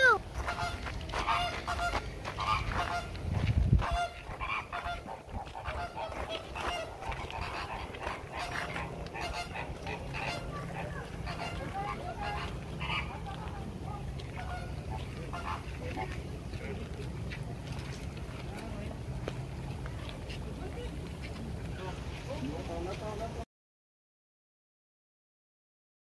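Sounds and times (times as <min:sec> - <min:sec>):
flamingos honking: 0:00.0 - 0:17.1.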